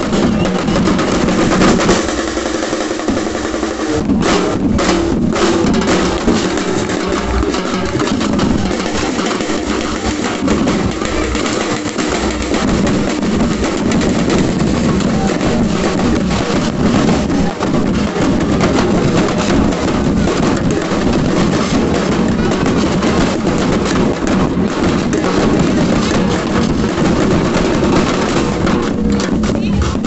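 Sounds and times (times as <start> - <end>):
drum troupe playing: 0.0 - 30.0.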